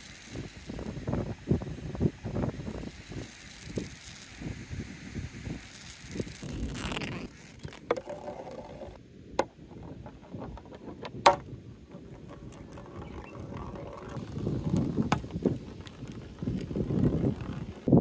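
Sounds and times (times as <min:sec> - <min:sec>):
ball rolling in plastic gutter: 0:05.6 - 0:18.0.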